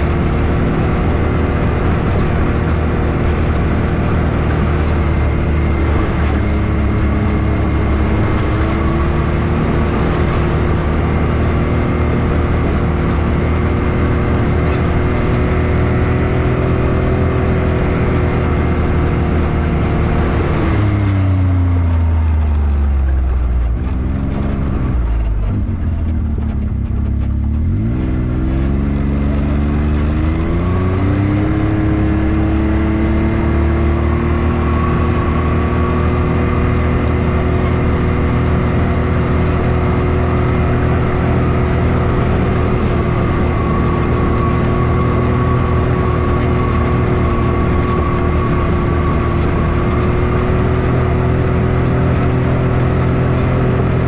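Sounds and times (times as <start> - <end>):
off-road vehicle engine: 0.0 - 54.0.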